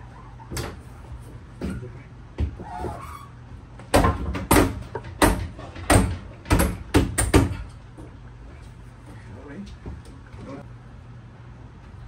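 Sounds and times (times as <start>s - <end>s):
sharp knocks on ceiling panel: 3.9s - 7.6s.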